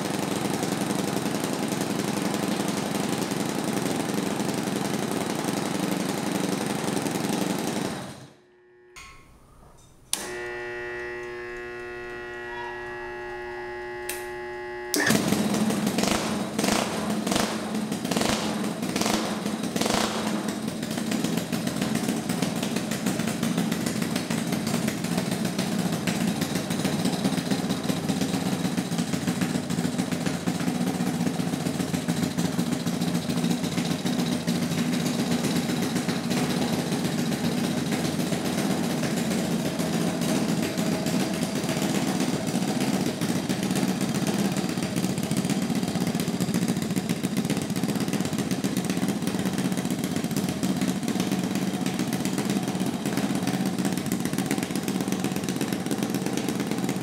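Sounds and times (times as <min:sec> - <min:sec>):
engine starting and running: 0:00.0 - 0:57.0
electric hum: 0:08.4 - 0:16.9.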